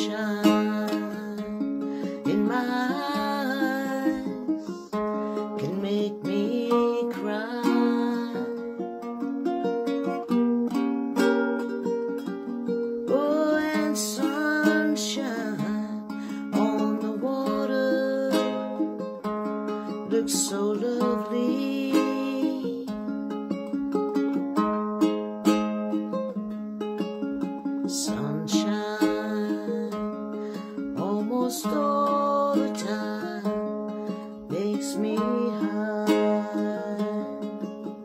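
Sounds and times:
woman singing slowly: 0.0s - 1.6s, 2.2s - 8.6s, 13.1s - 18.7s, 20.1s - 22.9s, 27.9s - 30.1s, 30.9s - 33.7s, 34.4s - 37.4s
ukulele: 0.0s - 38.0s.

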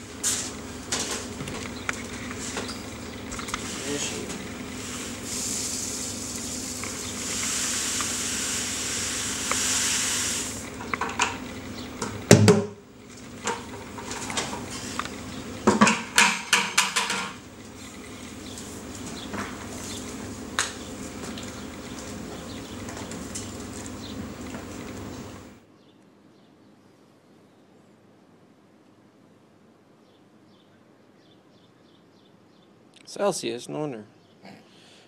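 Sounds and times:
plastic bucket knocks and clatters: 12.3s - 12.8s.

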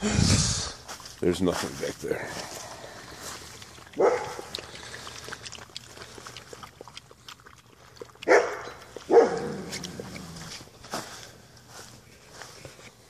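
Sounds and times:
puppies eating from steel bowl: 1.2s - 10.9s
dog barking: 4.0s - 4.5s, 8.2s - 9.6s.

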